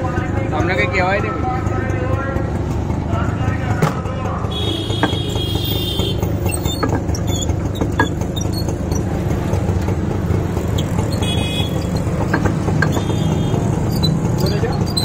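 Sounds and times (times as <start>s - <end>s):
street traffic rumble: 0.0s - 15.0s
vehicle horn toot: 4.5s - 6.4s, 11.1s - 12.0s, 12.8s - 13.8s.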